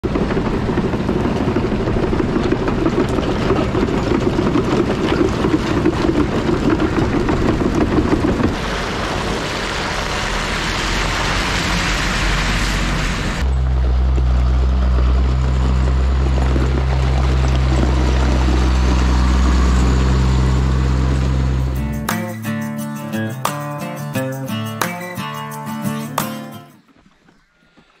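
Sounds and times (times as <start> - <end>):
clanking tracks: 0.0 - 9.8, 11.3 - 26.8
truck passing with rushing noise: 0.0 - 22.1
diesel engine running: 0.0 - 24.9.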